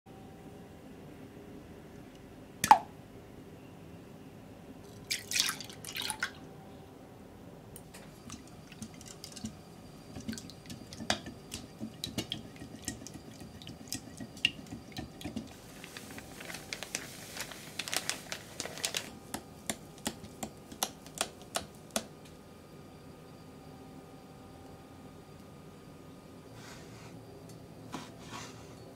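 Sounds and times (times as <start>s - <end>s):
egg plopping into bowl: 2.6s - 2.9s
whisk stirring wet batter: 8.0s - 17.4s.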